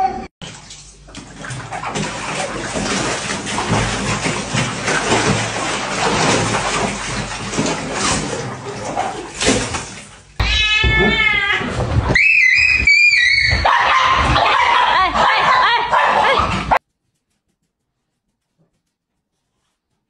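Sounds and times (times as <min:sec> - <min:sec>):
water splashing in a plastic tub: 0:00.4 - 0:10.4
cat meowing: 0:10.4 - 0:12.2.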